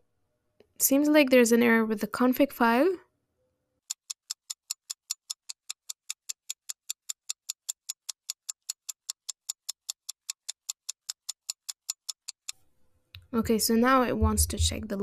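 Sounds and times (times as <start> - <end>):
clock ticking fast: 3.9 - 12.5, 13.9 - 15.0.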